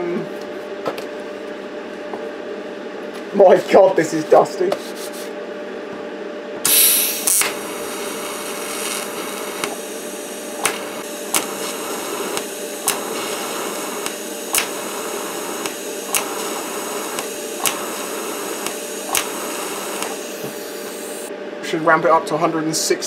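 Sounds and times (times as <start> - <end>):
faint hum: 5.2 - 23.0
welding arc hissing and crackling: 6.7 - 21.3.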